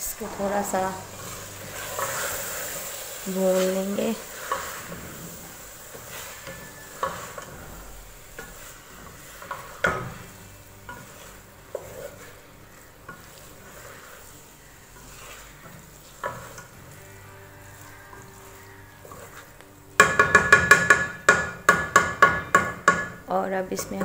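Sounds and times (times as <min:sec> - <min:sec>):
oil sizzling: 0:00.0 - 0:24.0
wooden spatula stirring dal: 0:00.1 - 0:24.0
spatula knocking against pot: 0:20.0 - 0:23.2.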